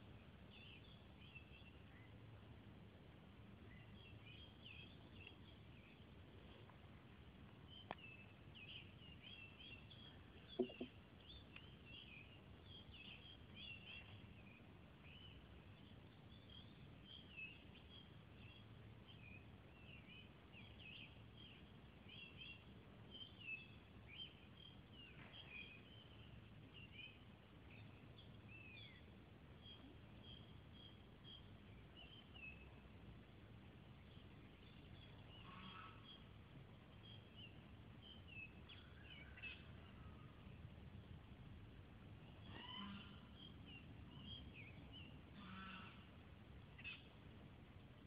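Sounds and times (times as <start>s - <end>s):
faint background hiss: 0.0s - 48.0s
birds chirping: 7.6s - 18.6s
brief knock: 10.5s - 10.9s.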